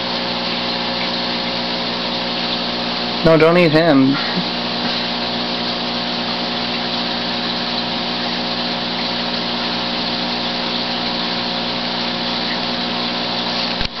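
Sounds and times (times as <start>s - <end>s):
aquarium pump motor hum: 0.0s - 14.0s.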